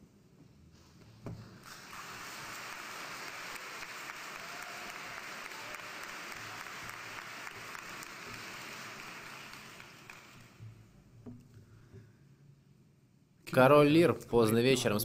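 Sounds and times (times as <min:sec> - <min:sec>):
audience applauding: 0:01.6 - 0:10.6.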